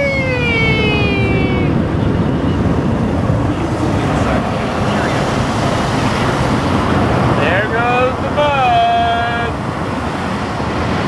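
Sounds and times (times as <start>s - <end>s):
long wail: 0.0s - 1.9s.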